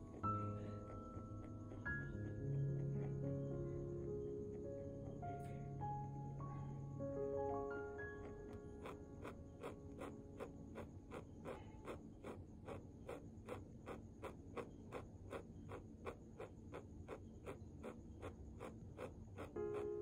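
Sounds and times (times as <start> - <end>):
pen scratching on paper: 0.0 - 3.2, 8.2 - 20.0.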